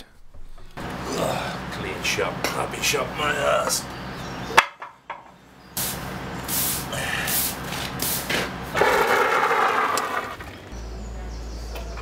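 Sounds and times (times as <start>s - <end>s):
push broom sweeping concrete: 5.8s - 10.4s.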